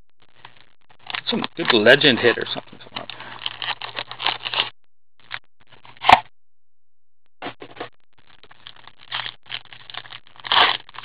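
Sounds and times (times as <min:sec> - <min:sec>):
cards rustling: 0:00.4 - 0:04.7.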